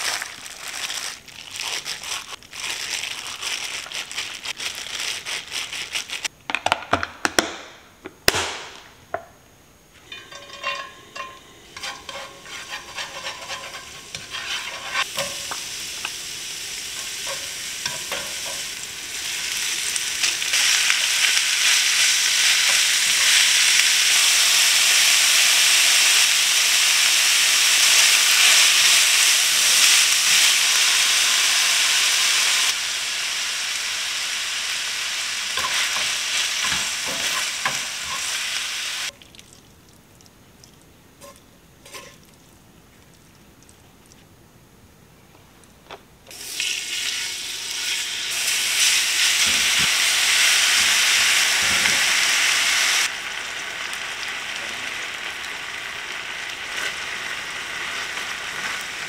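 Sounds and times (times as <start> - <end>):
food sizzling in frying pan: 10.0 - 39.2, 46.3 - 59.0.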